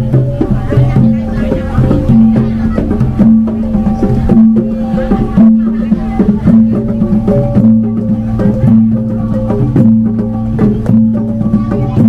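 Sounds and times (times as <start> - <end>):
gamelan ensemble playing: 0.0 - 12.0.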